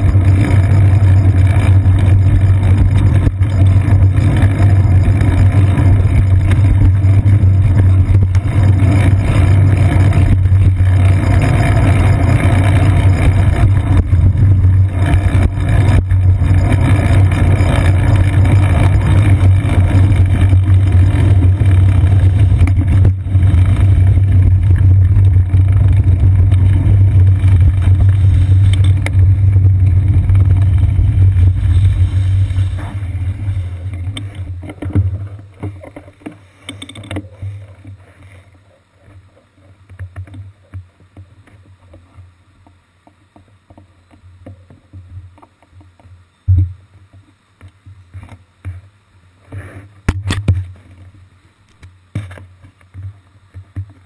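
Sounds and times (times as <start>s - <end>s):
city traffic: 0.0s - 34.8s
wind on camera: 0.0s - 35.8s
road vibration rumble: 0.0s - 54.0s.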